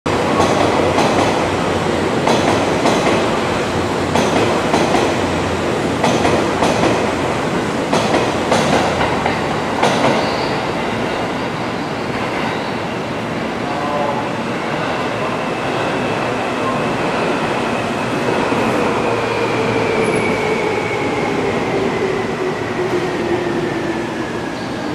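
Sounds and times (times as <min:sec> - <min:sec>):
train wheels clacking: 0:04.1 - 0:05.2, 0:06.0 - 0:07.0, 0:07.9 - 0:10.6.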